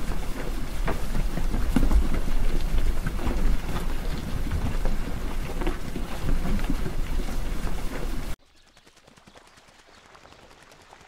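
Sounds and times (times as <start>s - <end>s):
cattle chewing hay: 0.0s - 8.4s
wind rumbling on microphone: 0.0s - 8.4s.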